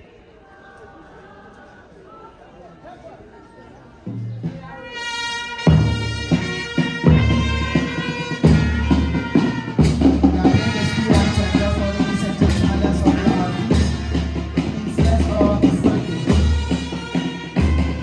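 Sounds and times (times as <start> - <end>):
brass band playing a march: 4.6 - 18.0
heavy drum strokes: 5.6 - 18.0.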